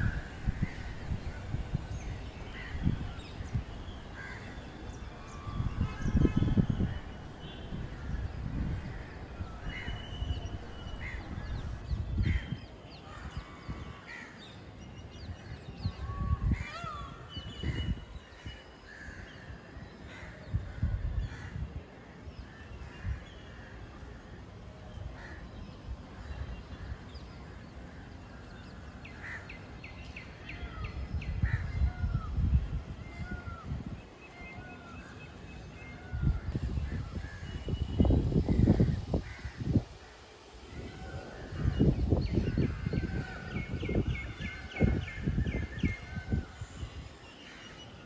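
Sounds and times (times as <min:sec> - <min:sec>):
birds chirping: 0:00.0 - 0:11.8
peafowl calling: 0:00.0 - 0:11.8.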